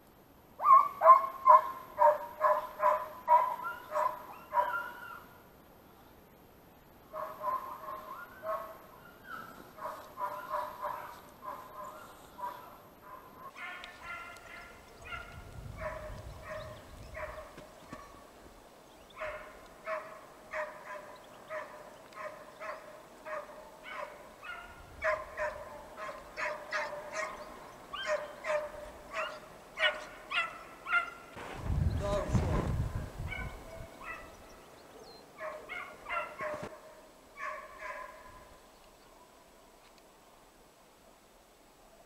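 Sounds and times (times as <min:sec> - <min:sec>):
hunting dogs baying: 0:00.6 - 0:05.3, 0:07.1 - 0:18.3, 0:19.1 - 0:31.4, 0:33.2 - 0:38.5.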